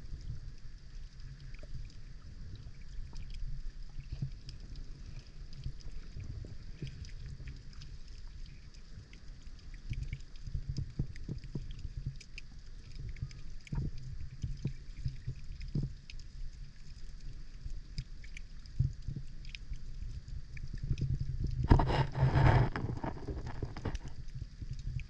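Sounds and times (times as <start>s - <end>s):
underwater rumble of moving water: 0.0s - 25.0s
faint clicks: 6.8s - 25.0s.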